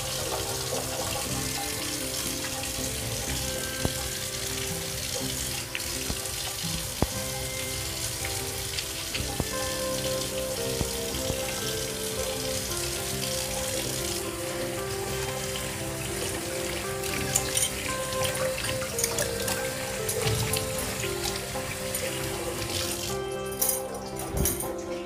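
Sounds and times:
batter frying in hot oil: 0:00.0 - 0:23.9
oil popping: 0:00.0 - 0:24.7.

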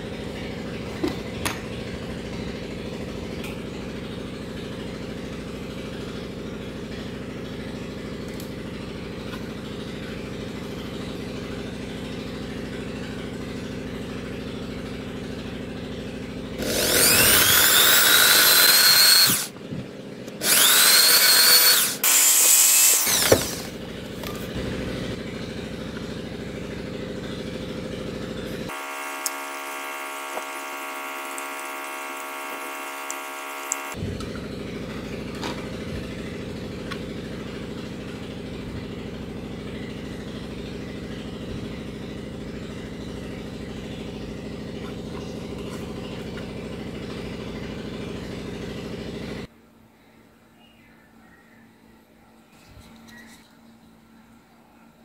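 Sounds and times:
power tool motor whining: 0:16.6 - 0:24.6, 0:28.4 - 0:34.4.

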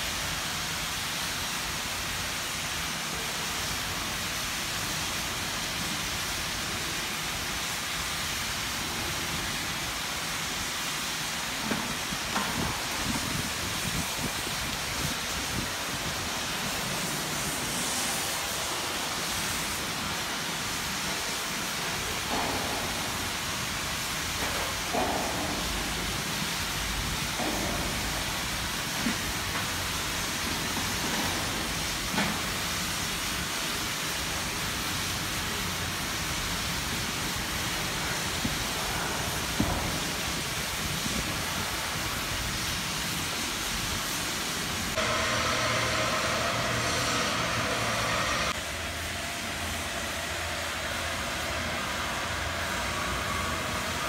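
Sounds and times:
workshop noise hiss: 0:00.0 - 0:54.0
metal knocks and clanks: 0:24.3 - 0:29.8
machine hum: 0:45.0 - 0:54.0.

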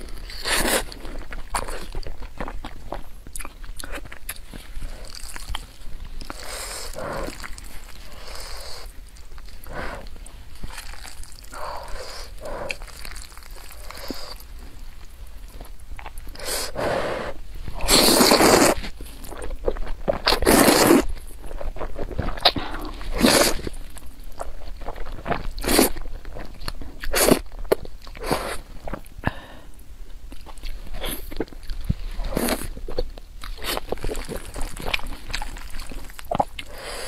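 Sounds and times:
wet chewing: 0:00.0 - 0:16.8, 0:17.7 - 0:29.2, 0:30.3 - 0:37.0
person slurping noodles: 0:16.4 - 0:18.8, 0:20.3 - 0:21.1.

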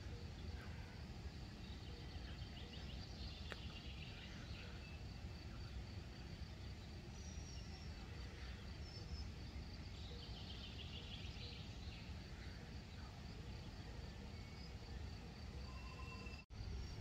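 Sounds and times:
bird chirping: 0:01.3 - 0:17.0
faint high bird calls: 0:07.0 - 0:17.0
steady low rumble: 0:16.5 - 0:17.0.

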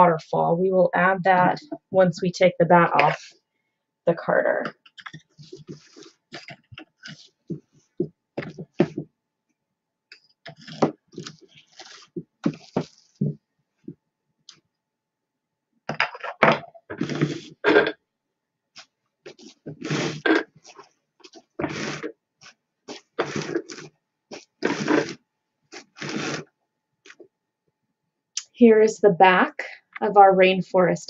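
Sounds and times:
fibre rustling and tearing: 0:10.5 - 0:13.3, 0:18.8 - 0:26.5.

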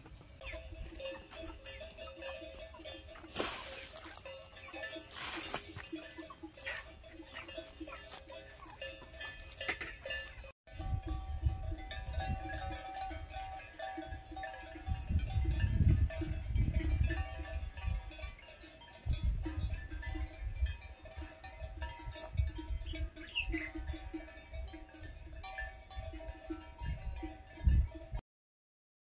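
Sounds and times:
wind rumbling on microphone: 0:10.7 - 0:28.2.

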